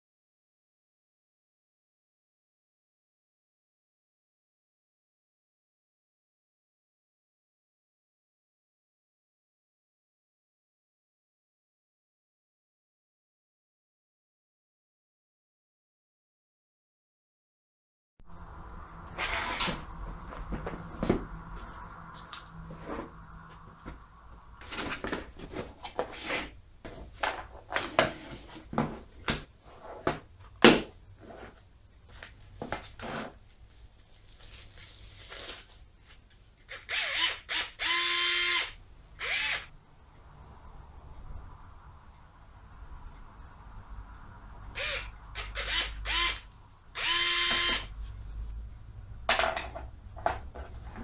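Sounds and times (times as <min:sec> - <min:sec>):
electric screwdriver motor whining: 0:36.7 - 0:39.7, 0:44.8 - 0:47.9.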